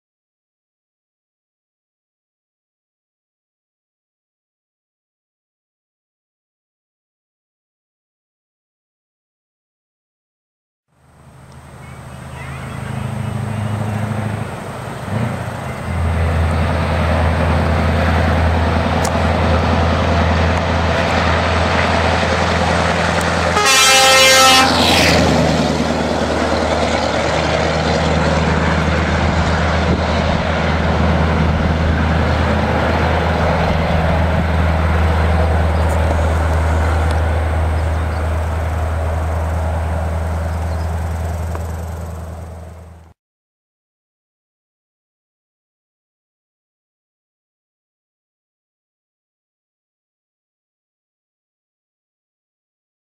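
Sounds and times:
truck diesel engine driving by: 10.9 - 43.1
truck horn toot: 11.8 - 14.4, 23.5 - 25.3.

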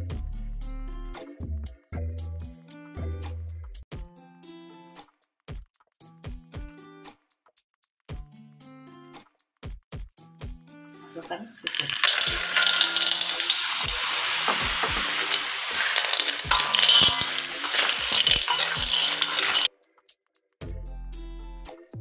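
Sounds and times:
frying sizzle in a wok: 10.8 - 19.7
spatula stirring snails: 11.5 - 19.7.

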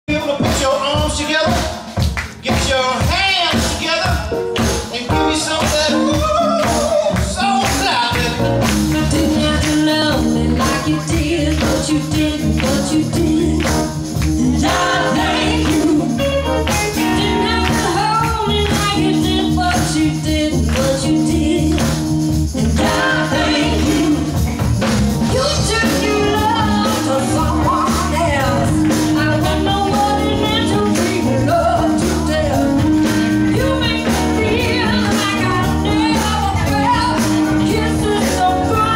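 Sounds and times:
live band playing soul music: 0.1 - 38.9
sharp rhythmic hits: 0.2 - 38.9
women singing: 8.9 - 16.4, 17.0 - 24.6, 25.3 - 38.9.

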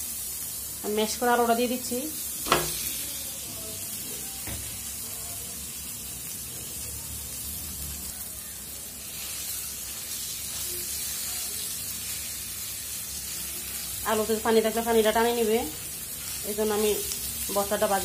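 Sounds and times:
food sizzling in a pan: 0.0 - 18.0
wooden spatula turning food: 8.1 - 18.0.

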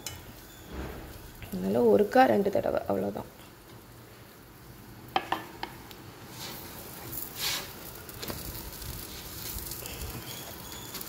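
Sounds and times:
ghee sizzling on pan: 0.0 - 11.0
spatula scraping pan: 6.3 - 7.8.

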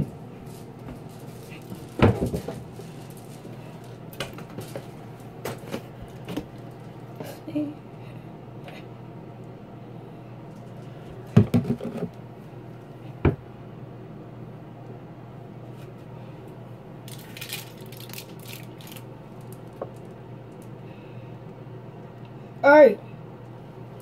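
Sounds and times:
scratchy rustling: 0.0 - 5.7
low steady hum: 0.0 - 24.0
plastic bottles knocking: 11.3 - 12.1.

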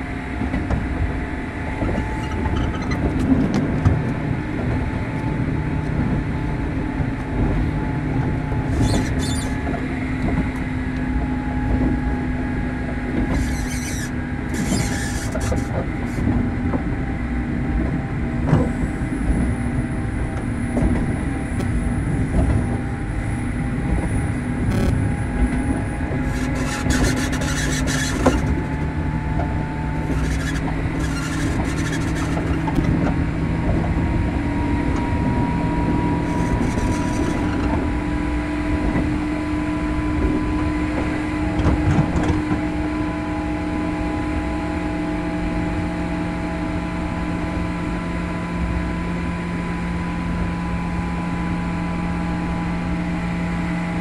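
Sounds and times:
train wheels rumbling on rails: 0.0 - 54.0
drive gear whine: 1.6 - 6.0, 7.2 - 12.3, 13.1 - 16.4, 17.7 - 38.0.

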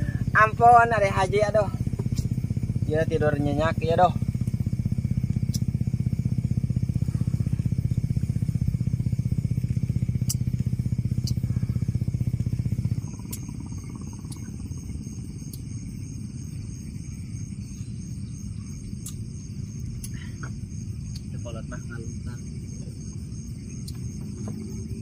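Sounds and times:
night insects chirring: 0.0 - 25.0
small engine running: 0.0 - 25.0
sharp clicks: 10.2 - 11.4.

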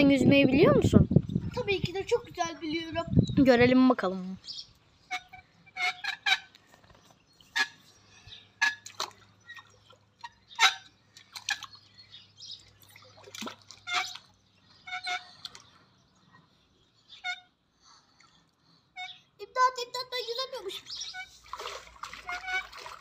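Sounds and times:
pool water splashing: 8.6 - 15.8, 20.8 - 23.0.

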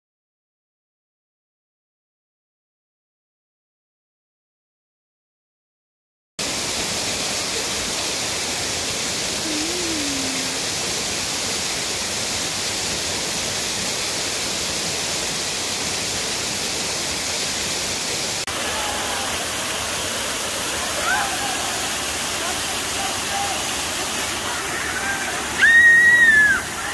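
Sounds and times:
waterfall rushing over rocks: 6.4 - 26.9.

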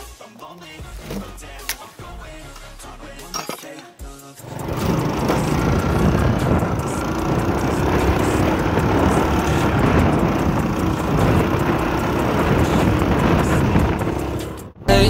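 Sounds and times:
motorcycle engine running: 4.4 - 15.0
wind noise on microphone: 4.6 - 14.9.

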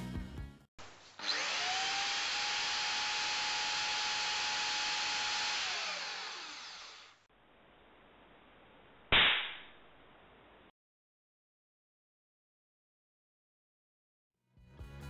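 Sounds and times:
electric drill whining: 1.1 - 7.2.

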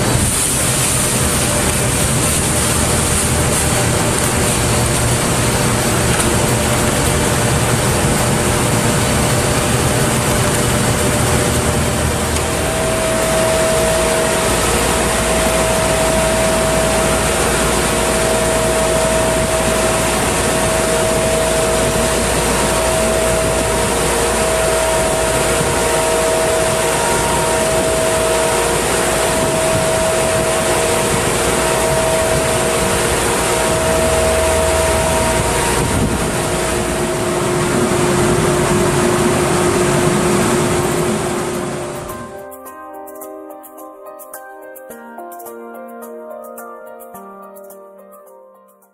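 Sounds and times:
blast machine droning: 0.0 - 42.4
whining hum: 0.0 - 42.4.

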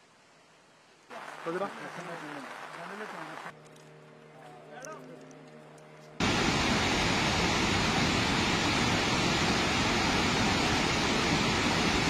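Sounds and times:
water rushing down spillway: 6.2 - 12.0.

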